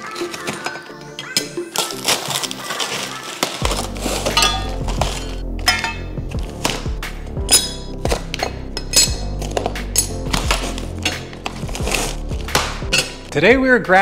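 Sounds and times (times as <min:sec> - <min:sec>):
background music with bass: 0:03.6 - 0:14.0
metal brackets clinking: 0:04.2 - 0:06.2, 0:07.4 - 0:11.6, 0:12.8 - 0:13.3.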